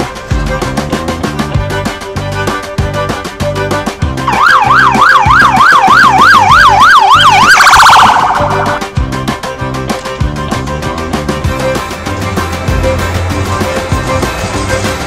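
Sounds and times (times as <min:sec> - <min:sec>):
cheerful background music: 0:00.0 - 0:15.0
police siren yelping: 0:04.2 - 0:08.8.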